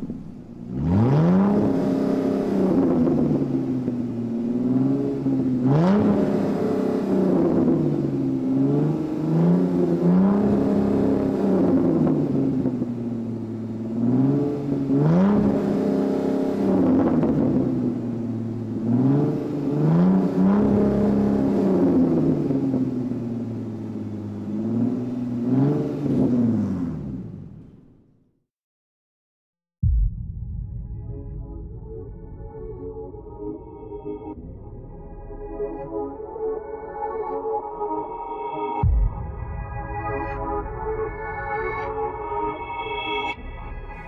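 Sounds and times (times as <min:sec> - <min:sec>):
car engine revving: 0:00.0 - 0:28.1.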